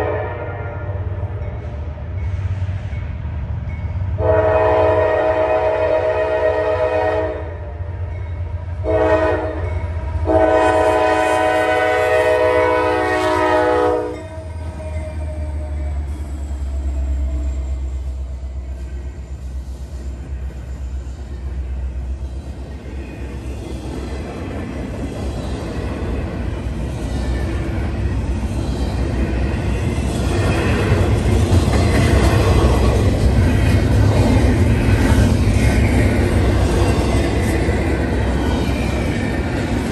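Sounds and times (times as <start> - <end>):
locomotive air horn blasts: 0.0 - 1.0, 4.2 - 7.7, 8.8 - 14.8
locomotive engine rumble: 7.8 - 39.9.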